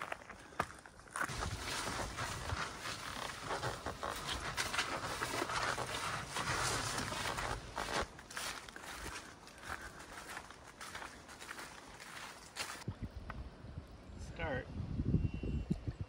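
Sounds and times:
footsteps through tall grass: 0:00.0 - 0:12.9
vegetation swishing: 0:01.3 - 0:08.6.

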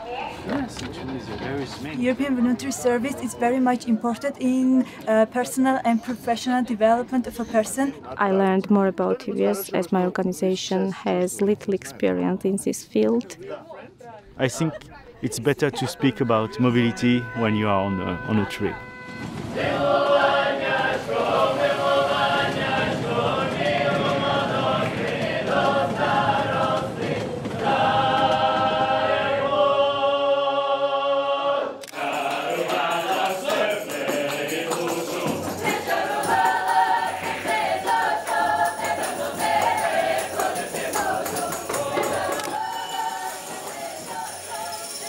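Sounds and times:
folk ensemble singing: 0:19.4 - 0:45.0
jingling percussion: 0:31.9 - 0:45.0.

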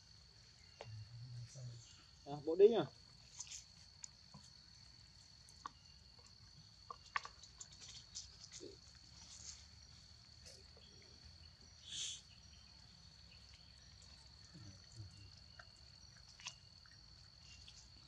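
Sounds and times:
brief hiss: 0:11.8 - 0:12.2.

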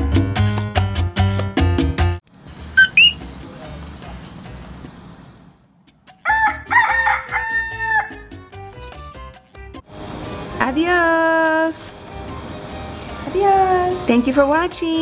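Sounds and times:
rising two-note chirp: 0:02.6 - 0:04.2
rooster crowing: 0:06.2 - 0:08.4.

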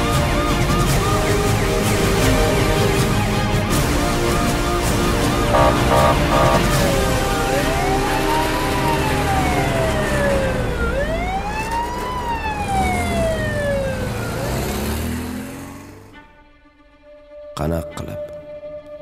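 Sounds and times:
siren wailing: 0:05.6 - 0:15.2.

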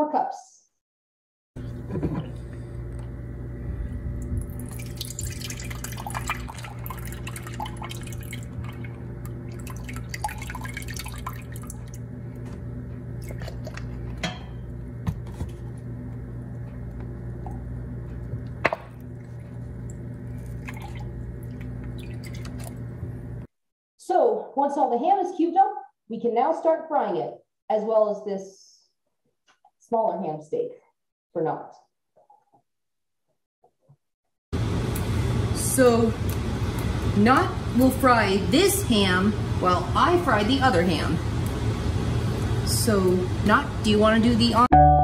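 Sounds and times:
steady low hum: 0:01.6 - 0:23.5
liquid pouring into cup: 0:04.2 - 0:12.0, 0:19.0 - 0:22.9
splashing and dripping: 0:04.3 - 0:12.0, 0:19.8 - 0:22.8.

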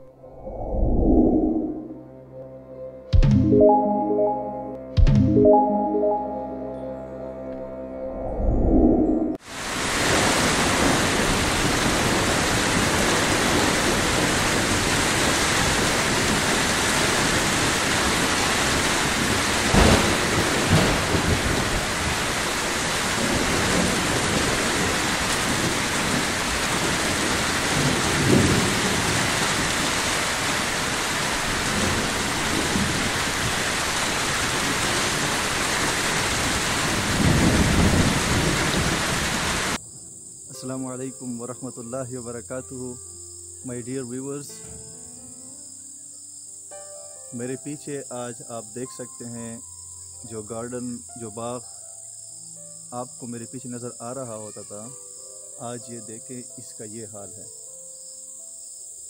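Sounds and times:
low thunder rumbles: 0:08.2 - 0:29.9, 0:36.1 - 0:40.1
heavy rain pouring: 0:09.4 - 0:39.8
thunder crack: 0:19.1 - 0:22.3.

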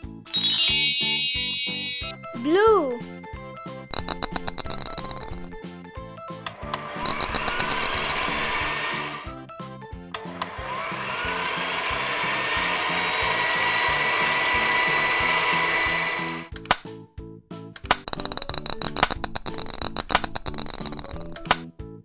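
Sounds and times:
children's music with steady beat: 0:00.0 - 0:06.2.

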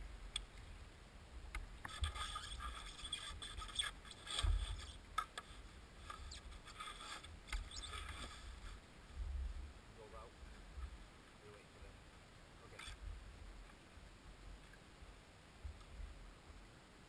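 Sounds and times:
canoe scraping on riverbed: 0:01.9 - 0:08.8.

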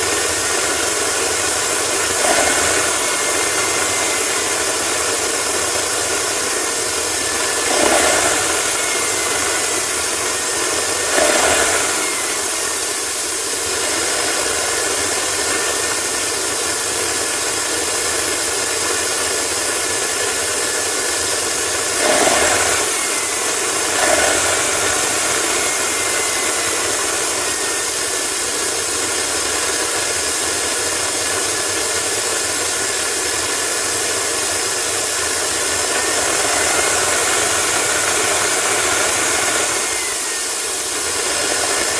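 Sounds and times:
jet engine hiss and whine: 0:20.1 - 0:41.9.

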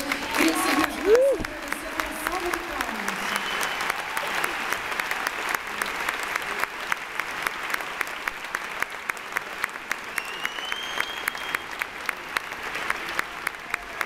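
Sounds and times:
audience applauding: 0:00.0 - 0:14.0
close sharp clapping: 0:00.0 - 0:14.0
whistle: 0:10.1 - 0:11.7.

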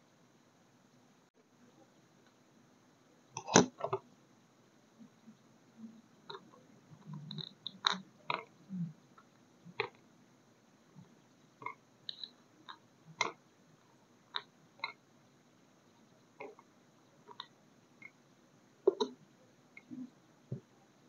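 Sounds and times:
small clicks and taps: 0:18.8 - 0:19.2.

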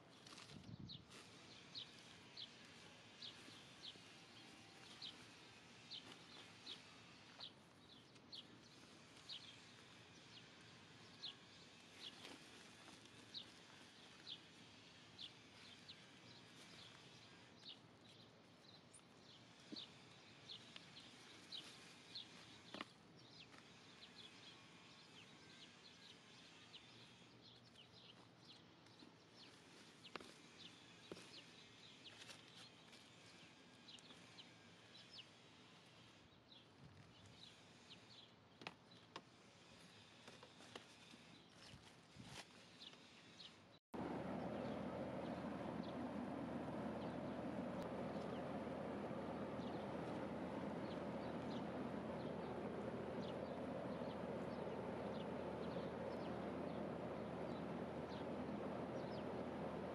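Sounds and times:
faint bird chirping: 0:44.0 - 0:59.9.

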